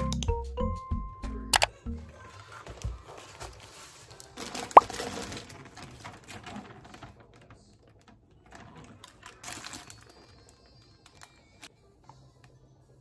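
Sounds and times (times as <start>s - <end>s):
plastic packaging rustling: 2.3s - 11.7s.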